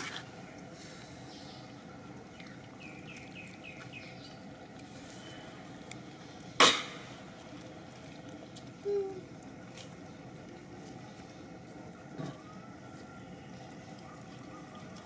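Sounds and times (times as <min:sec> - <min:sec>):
sharp loud crack: 0:06.6 - 0:07.0.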